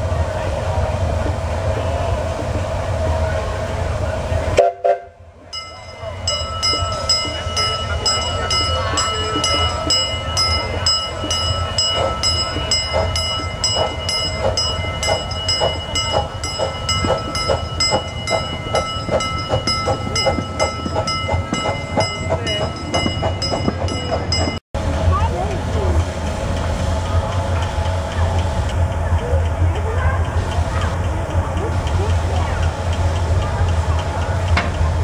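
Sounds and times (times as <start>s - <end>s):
steam locomotive chuffing: 0.0s - 35.0s
grade-crossing bell ringing: 5.5s - 24.6s.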